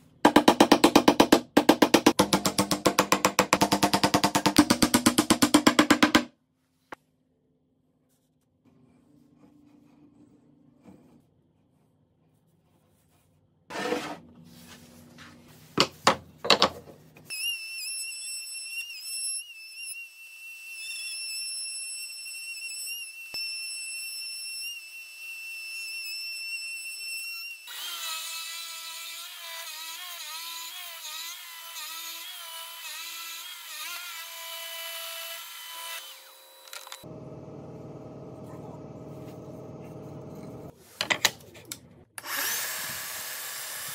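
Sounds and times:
sharp wooden knocks: 0.3 - 6.3
drill boring wood: 42.2 - 43.9.

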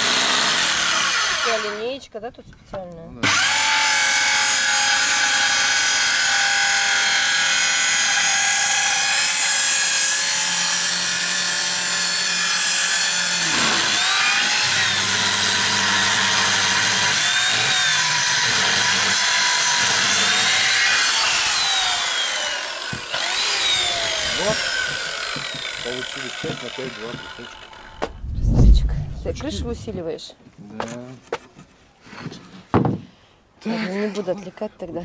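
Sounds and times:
circular saw cutting wood: 0.0 - 1.9, 3.2 - 28.3.

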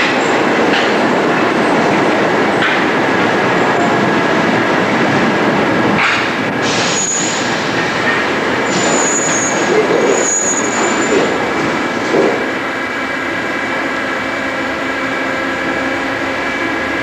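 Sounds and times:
train rumbling past: 0.0 - 17.0
train wheels squealing: 6.6 - 11.4.

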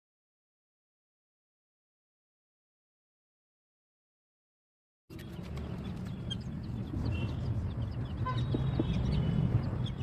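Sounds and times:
bird chirps and calls: 5.1 - 10.0.

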